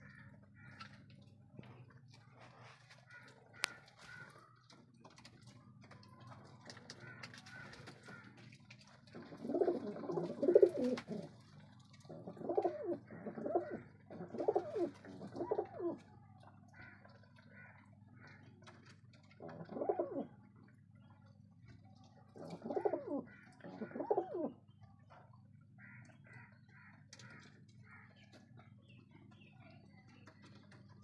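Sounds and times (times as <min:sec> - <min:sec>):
pigeons cooing: 0:09.0 - 0:16.1, 0:18.8 - 0:20.7, 0:22.3 - 0:24.7.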